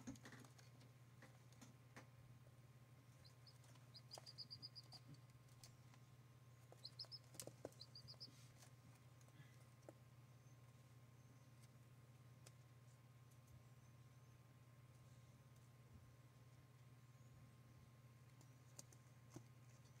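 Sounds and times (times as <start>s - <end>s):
steady low hum: 0.0s - 20.0s
turkey poults peeping: 3.2s - 5.1s, 6.7s - 8.5s.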